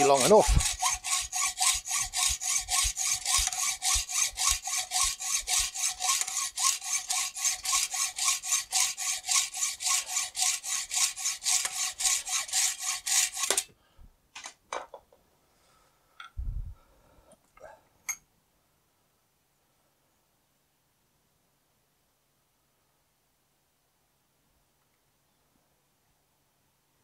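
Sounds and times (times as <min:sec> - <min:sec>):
hacksaw cutting steel: 0:00.0 - 0:13.7.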